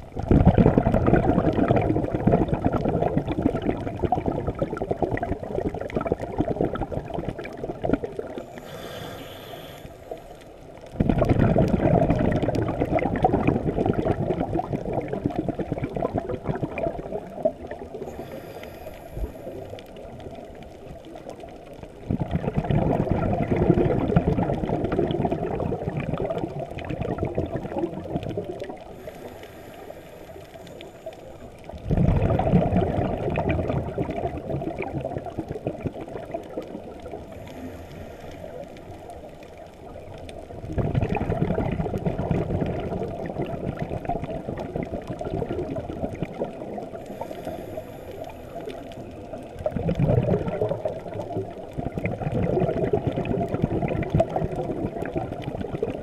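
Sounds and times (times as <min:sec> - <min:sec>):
exhaled bubbles rushing: 0:00.0 - 0:09.0, 0:10.8 - 0:56.0
regulator inhale hiss: 0:08.4 - 0:10.5, 0:18.0 - 0:20.0, 0:28.9 - 0:31.5, 0:37.3 - 0:39.2, 0:47.0 - 0:49.0.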